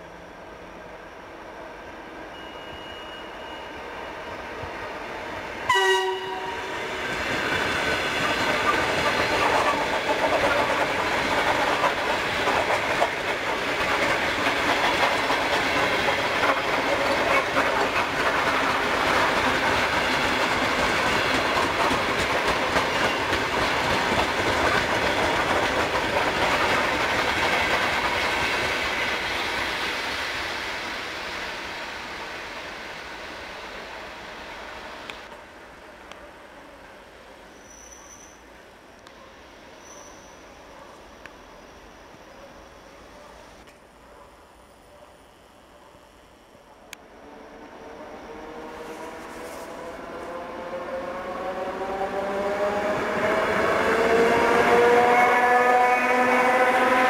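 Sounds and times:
train horn blast: 0:05.7 - 0:07.0, 0:54.1 - 0:57.0.

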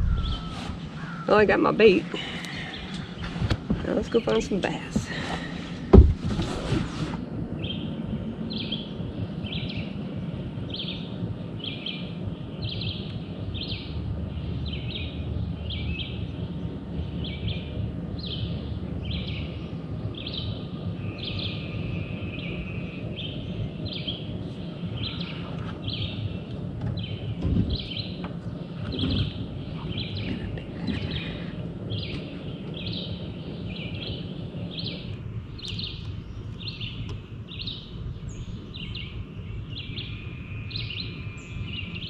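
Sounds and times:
bird calling: 0:00.0 - 0:05.8
steady low rumbling noise: 0:00.0 - 0:42.0
loud knock: 0:05.9 - 0:06.4.

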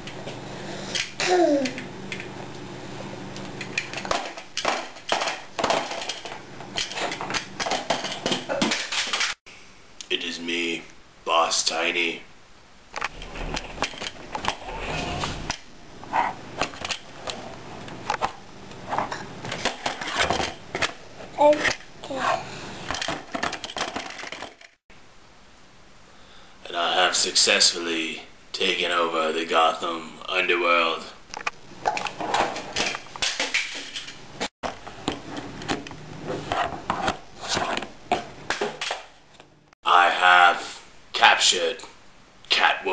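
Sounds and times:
plastic toys clattering on a tray: 0:03.6 - 0:09.4, 0:22.8 - 0:24.8.

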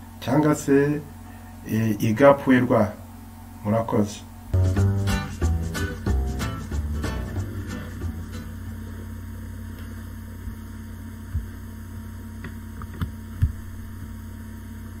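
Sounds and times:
low background hum: 0:00.0 - 0:15.0
short low thumps: 0:04.6 - 0:08.4.

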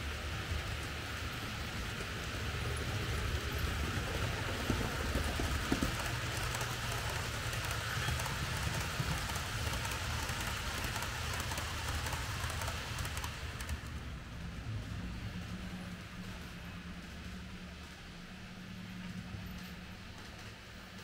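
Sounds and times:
model train wheels hissing: 0:00.0 - 0:13.9.

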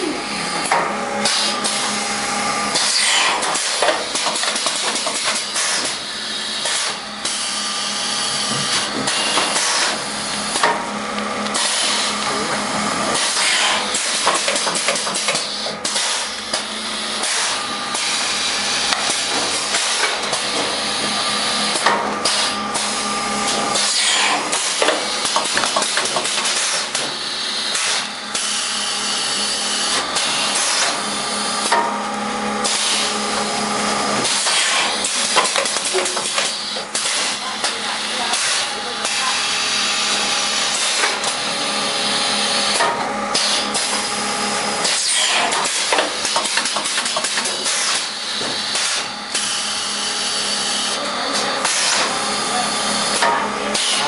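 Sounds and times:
machine humming: 0:00.0 - 0:54.0
packing machine clattering: 0:02.7 - 0:07.4, 0:13.1 - 0:28.7, 0:32.6 - 0:39.3, 0:40.0 - 0:49.5, 0:50.4 - 0:54.0.

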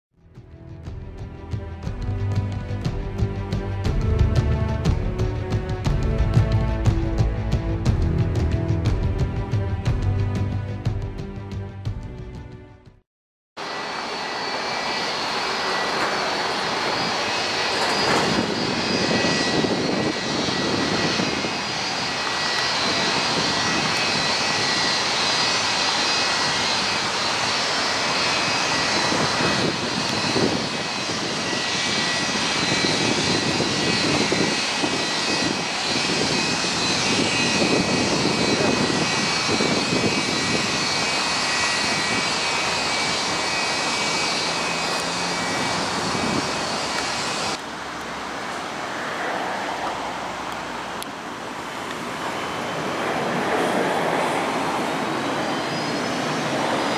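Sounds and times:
jet engines rushing and whining: 0:13.6 - 0:56.9.

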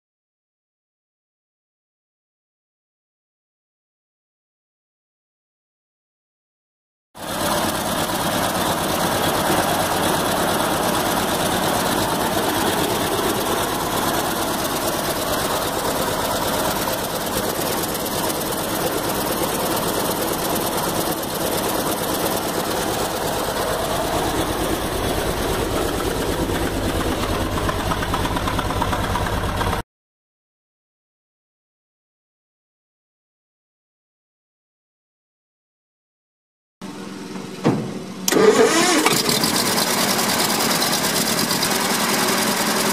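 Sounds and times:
truck engine idling: 0:07.2 - 0:29.8, 0:36.8 - 0:42.9.

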